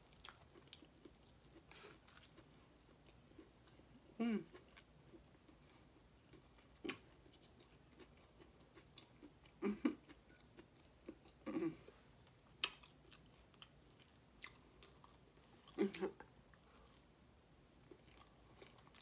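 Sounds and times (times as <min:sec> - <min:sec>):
mouth smacks and clicks chewing: 0:12.2 - 0:15.2.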